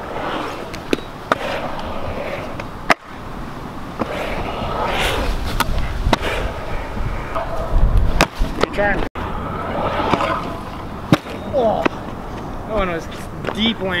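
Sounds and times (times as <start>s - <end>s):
small wheels rolling on concrete: 0.0s - 14.0s.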